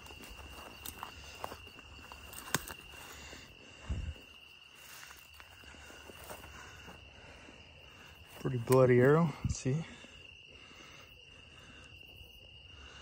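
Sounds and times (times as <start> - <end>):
footsteps on dry grass: 0.0 - 7.1
crickets trilling: 0.0 - 13.0.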